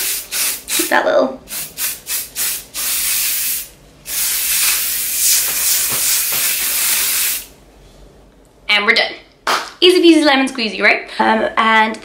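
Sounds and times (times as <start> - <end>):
aerosol can spraying: 0.0 - 0.9, 1.5 - 7.5.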